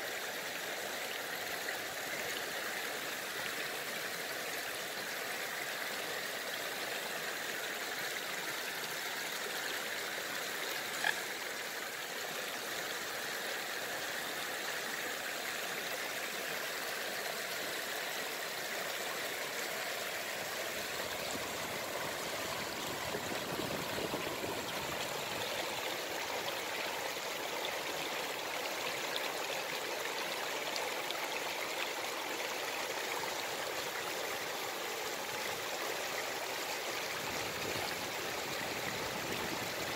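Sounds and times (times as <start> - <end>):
water rushing over stones: 19.3 - 39.9.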